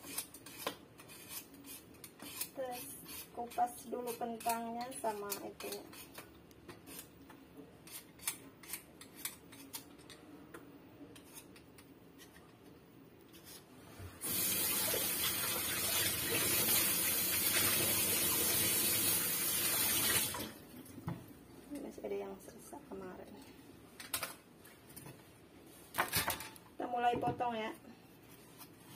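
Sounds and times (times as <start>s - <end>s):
peeler scraping a potato: 0.0s - 7.1s, 7.8s - 10.1s, 11.1s - 11.6s
kitchen tap running into sink: 14.2s - 20.6s.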